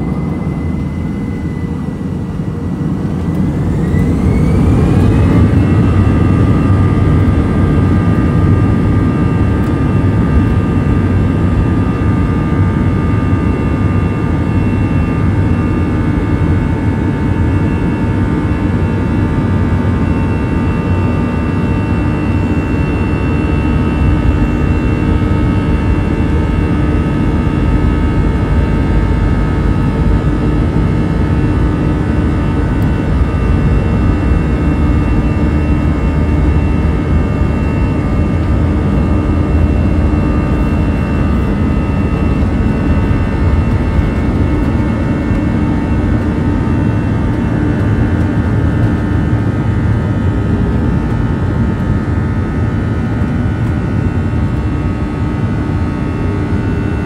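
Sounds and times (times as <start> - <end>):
buzz of steady tones: 0.0 - 57.0
jet engines rumbling in cabin: 0.0 - 57.0.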